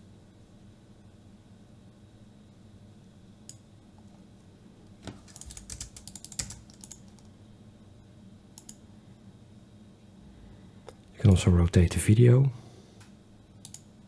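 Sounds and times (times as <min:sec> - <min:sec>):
faint room hum: 0:00.0 - 0:14.0
keyboard typing: 0:05.0 - 0:07.3.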